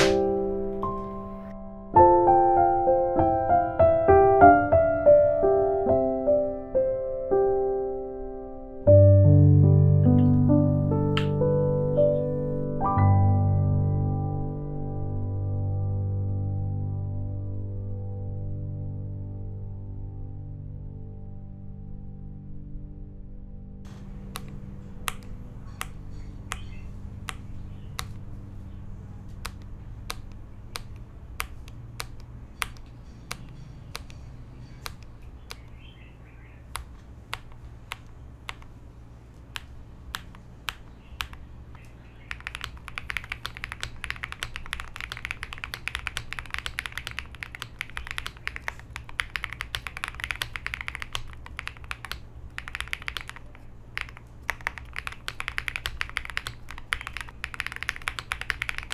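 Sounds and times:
mechanical keyboard typing: 23.9 - 28.2, 29.3 - 35.8, 36.6 - 38.8, 39.4 - 58.9.

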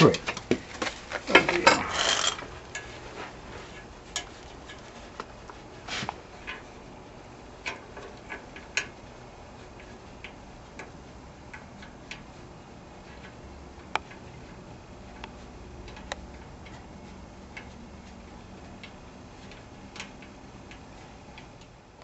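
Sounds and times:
small metallic clicks and taps: 7.6 - 9.0, 13.1 - 16.9, 17.5 - 21.8.

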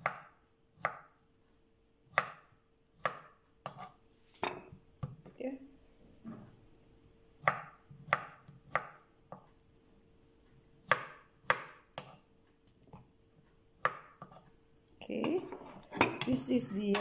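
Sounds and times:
knife chopping on wooden board: 0.0 - 1.1, 2.1 - 5.2, 7.4 - 9.5, 10.8 - 12.2, 13.8 - 14.4.

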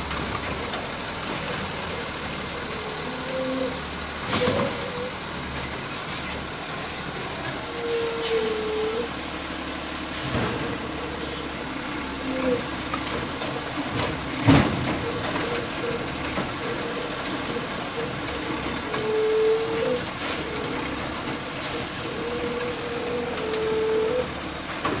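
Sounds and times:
garbage truck engine: 0.0 - 25.0
hydraulics whining: 0.0 - 25.0.

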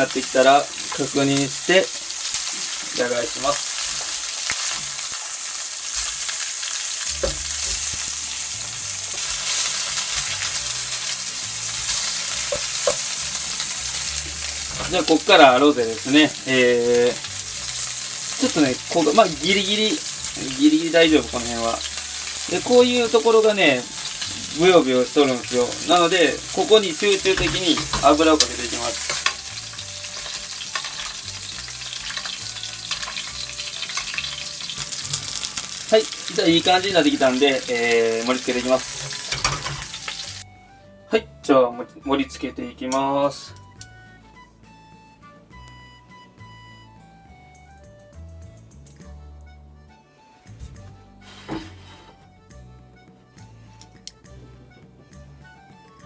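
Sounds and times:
fish sizzling in a frying pan: 0.0 - 40.4
spatula knocking and scraping pan: 12.4 - 13.2, 27.3 - 29.4, 39.0 - 40.0.

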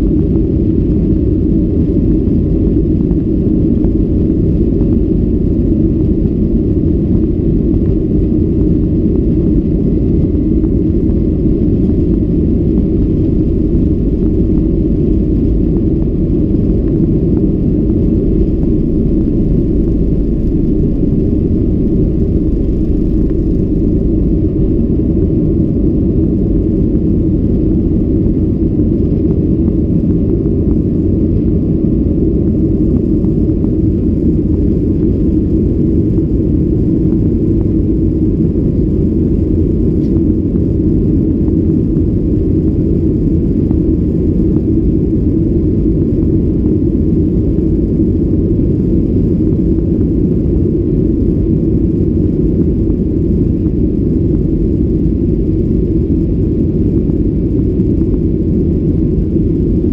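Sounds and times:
jet engines at takeoff thrust: 0.0 - 59.9
runway rumble: 10.9 - 28.0.

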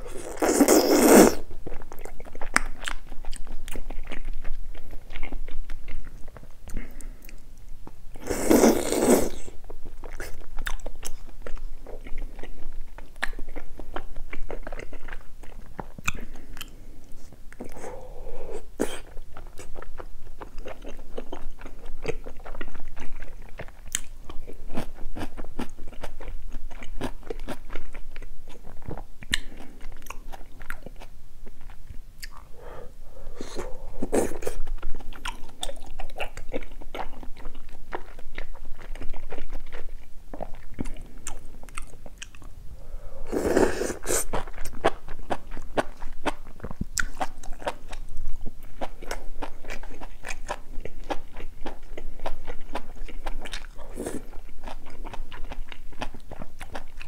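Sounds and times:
wet chewing with mouth clicks: 0.0 - 42.6, 43.3 - 57.0
loud noodle slurps: 0.1 - 1.4, 8.2 - 9.5, 43.2 - 44.4.

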